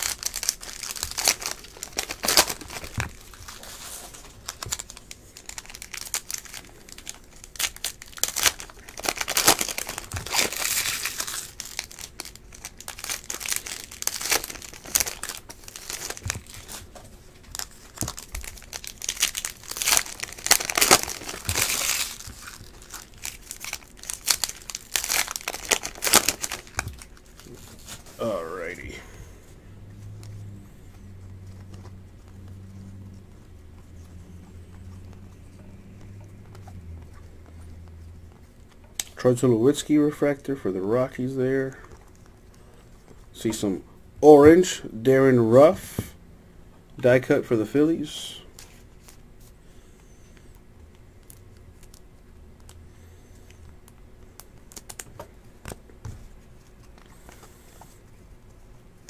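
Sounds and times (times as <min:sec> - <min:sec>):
foil wrappers crinkling and tearing: 0:00.0 - 0:28.8, 0:51.2 - 0:55.8.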